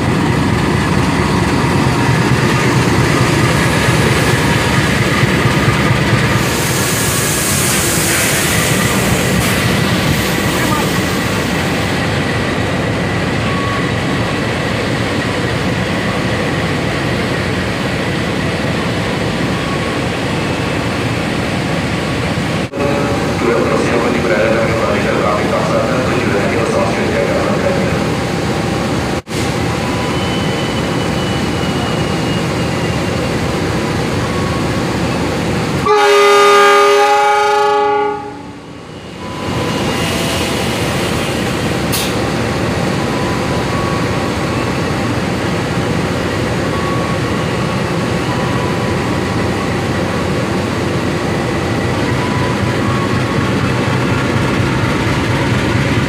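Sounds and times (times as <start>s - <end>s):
locomotive horn blast: 35.8s - 38.6s.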